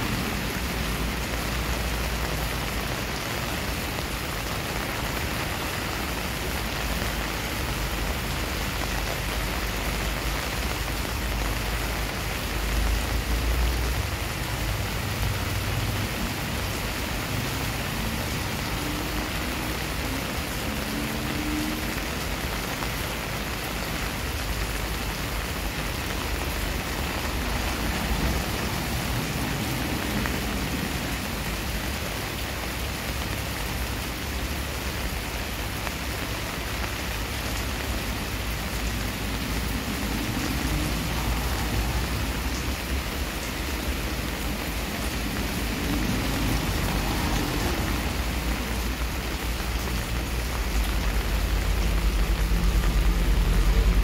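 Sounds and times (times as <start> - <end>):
heavy rain on pavement: 0.0 - 54.0.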